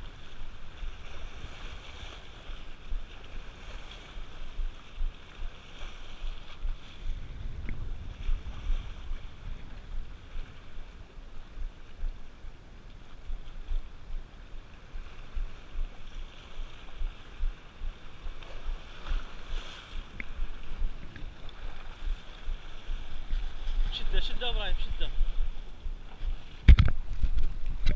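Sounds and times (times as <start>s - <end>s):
waves breaking on rocks: 0.0s - 27.9s
wind buffeting microphone: 0.0s - 27.9s
faint sharp ticks: 7.6s - 7.8s.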